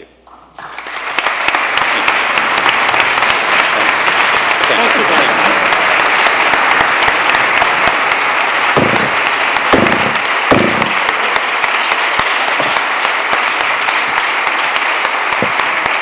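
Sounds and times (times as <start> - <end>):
crowd applause: 0.3 - 16.0
dull thumps: 8.8 - 11.0.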